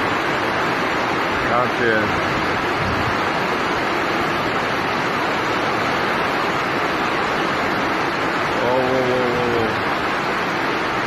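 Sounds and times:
storm rushing noise: 1.4s - 3.4s.

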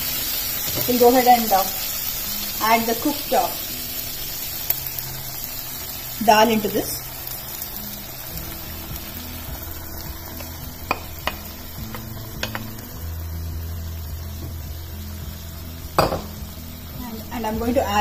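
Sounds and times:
pan sizzling: 0.0s - 18.0s
spoon tapping on pan: 10.4s - 12.8s, 16.0s - 16.4s.

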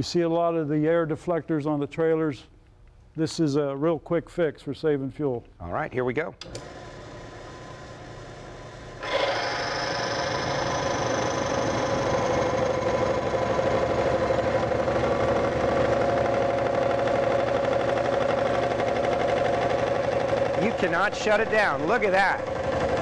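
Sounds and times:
electric motor metallic whine: 6.6s - 14.3s.

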